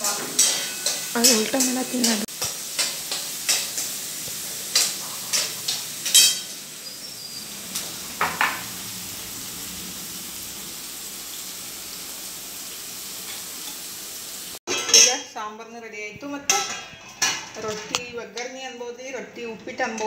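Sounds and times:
metal spoon scraping pan: 0.0 - 8.6
onions sizzling in oil: 0.0 - 14.6.

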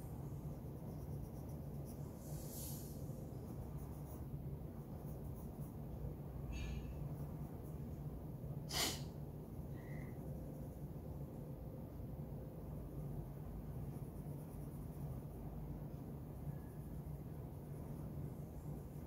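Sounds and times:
steady low hum: 0.0 - 19.0
pencil scratching on paper: 0.5 - 2.2, 3.3 - 6.0, 13.7 - 15.4.

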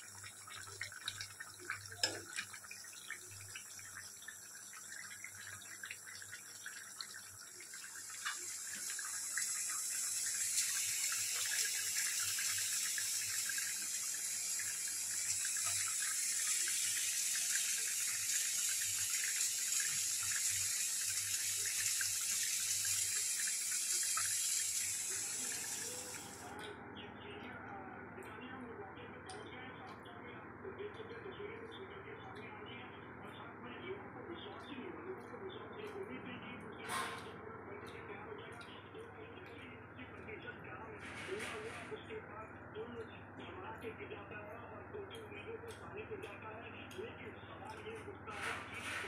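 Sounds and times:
curry bubbling and hissing: 0.0 - 26.6.

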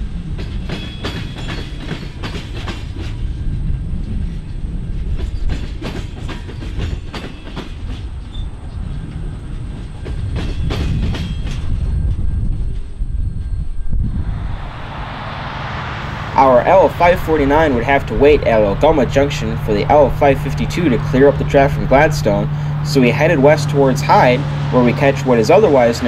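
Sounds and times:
train rumble: 0.0 - 26.0
train wheels clattering: 0.2 - 13.0.

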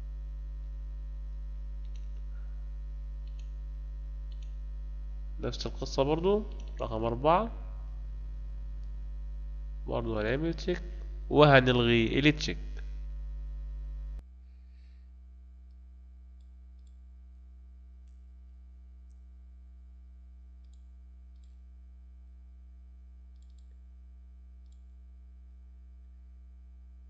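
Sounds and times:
electrical mains hum: 0.0 - 27.0
computer mouse clicks: 3.2 - 3.6, 6.5 - 6.8, 23.3 - 23.8, 24.6 - 24.9.

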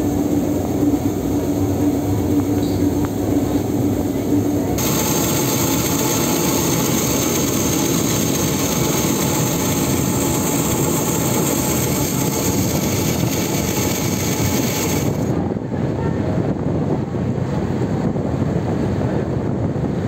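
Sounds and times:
ship diesel engines running: 0.0 - 15.7
churning propeller wash: 4.2 - 15.6.

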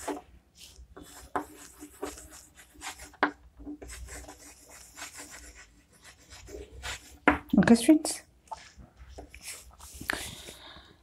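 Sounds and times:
chalk scratching on blackboard: 0.0 - 7.4, 8.6 - 10.0
chalk tapping board: 0.0 - 7.5.

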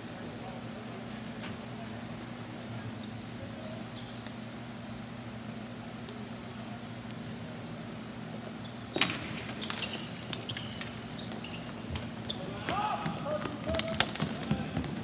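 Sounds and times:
sneaker squeaks: 2.9 - 4.5, 6.2 - 15.0.

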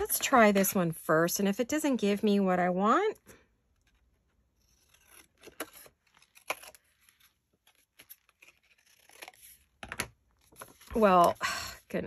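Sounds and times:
paper rustle: 10.4 - 11.4.

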